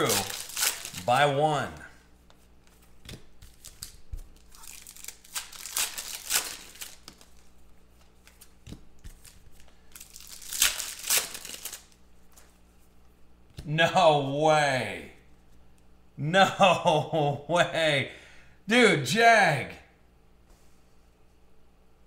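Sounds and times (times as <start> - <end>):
foil wrappers crinkling and tearing: 0.0 - 1.4, 2.6 - 12.6.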